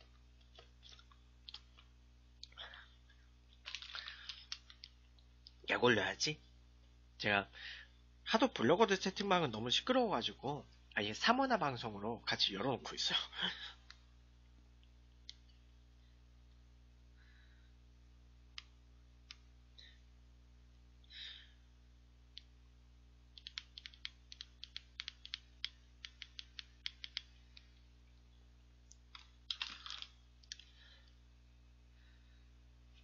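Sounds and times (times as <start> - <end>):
phone handling rustle: 3.6 - 4.9.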